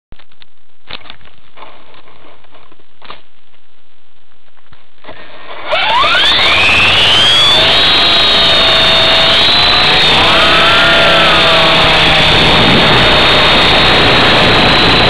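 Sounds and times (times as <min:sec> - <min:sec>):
rc helicopter motor whine: 0:05.1 - 0:15.0.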